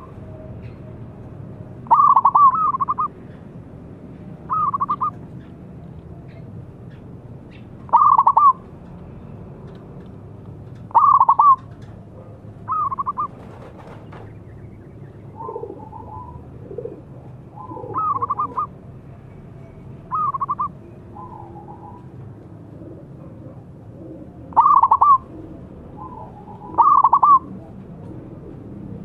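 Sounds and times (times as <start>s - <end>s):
dove cooing: 1.9s - 3.1s, 4.5s - 5.2s, 7.9s - 8.6s, 10.9s - 13.9s, 15.3s - 18.8s, 20.1s - 28.8s.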